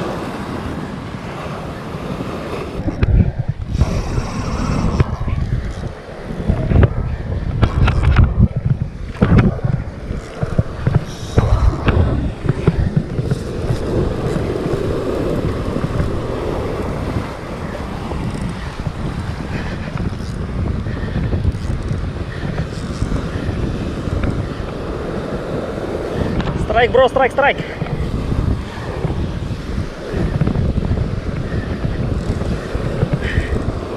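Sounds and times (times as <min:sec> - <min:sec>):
surf breaking on rocks: 0:00.0 - 0:33.9
wind buffeting microphone: 0:00.0 - 0:33.9
sudden bumps: 0:06.5 - 0:16.2.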